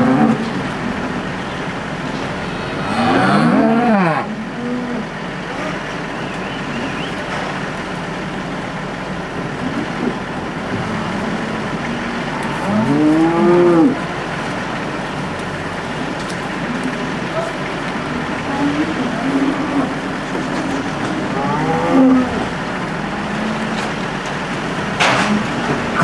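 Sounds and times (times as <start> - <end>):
cow mooing: 0.0 - 0.6, 2.4 - 5.8, 10.9 - 14.3, 18.1 - 24.0
steady background noise: 0.0 - 26.0.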